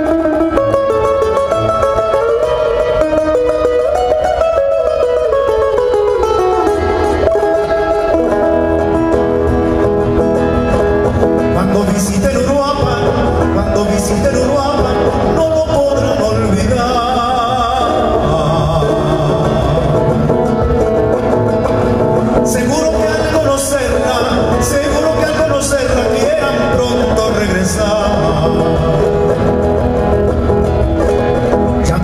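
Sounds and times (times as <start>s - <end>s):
classical guitar fingerpicking: 0.0s - 32.0s
man singing: 11.3s - 20.8s, 22.3s - 29.8s, 31.7s - 32.0s.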